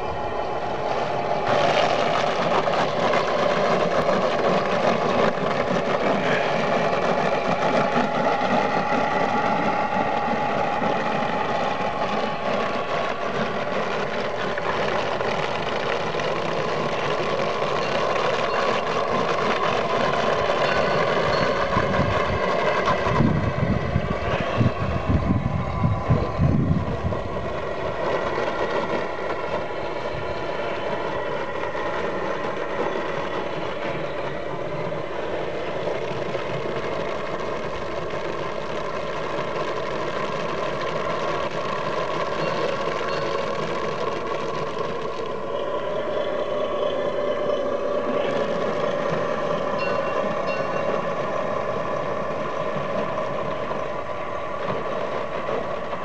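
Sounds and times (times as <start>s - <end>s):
model boat engine running: 1.5s - 23.3s.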